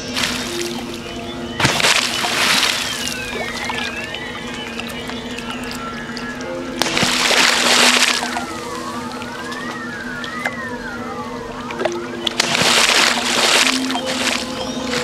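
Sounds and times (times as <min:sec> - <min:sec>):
background music: 0:00.0 - 0:15.0
heavy splash in water: 0:01.6 - 0:03.2, 0:06.8 - 0:08.5, 0:12.4 - 0:14.5.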